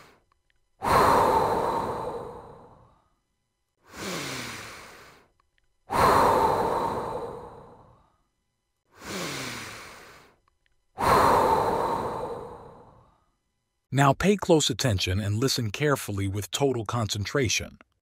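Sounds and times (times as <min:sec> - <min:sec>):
deep human breaths: 0:00.0 - 0:00.2, 0:00.8 - 0:03.2, 0:03.8 - 0:05.3, 0:05.9 - 0:08.3, 0:08.9 - 0:10.4, 0:11.0 - 0:13.4.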